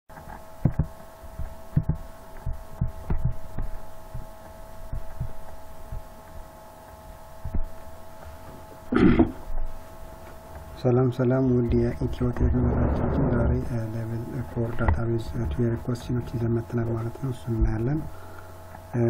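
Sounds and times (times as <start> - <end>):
steady hum: 0.1 - 19.0
low thumps: 0.6 - 6.1, 7.4 - 7.9.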